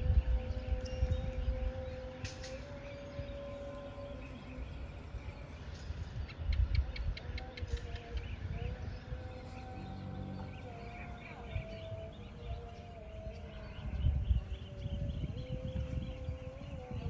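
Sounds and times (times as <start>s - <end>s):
wind rumble on microphone: 0.0s - 17.0s.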